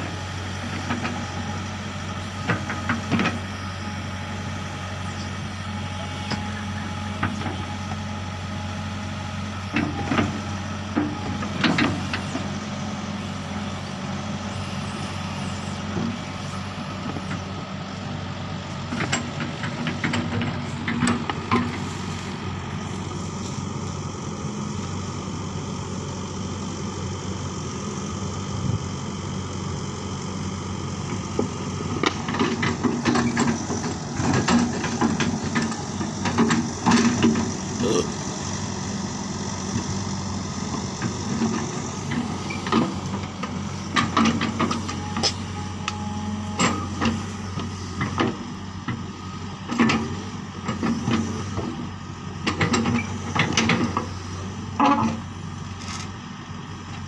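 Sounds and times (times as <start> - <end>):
diesel engine running: 0.0 - 57.0
metal clanks of steel tracks: 18.9 - 21.9, 43.9 - 47.3, 52.4 - 56.1.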